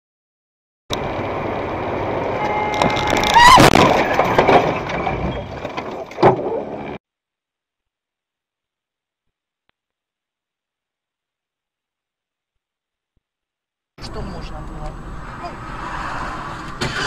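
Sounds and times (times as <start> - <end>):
road noise: 0.9 - 7.0, 14.0 - 17.0
loud car crash with squeal: 2.4 - 7.0, 15.2 - 17.0.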